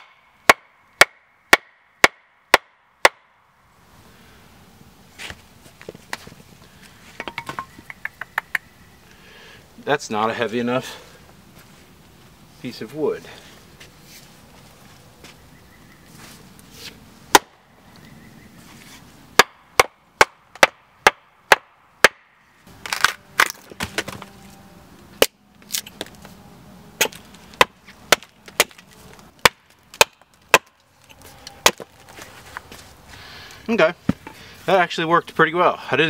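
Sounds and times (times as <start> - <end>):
axe striking log: 0.0 - 3.3, 17.3 - 17.6, 19.4 - 24.2, 27.0 - 28.8, 29.4 - 30.8, 31.6 - 32.0
wood crackling as it splits: 22.8 - 24.3, 27.0 - 32.6.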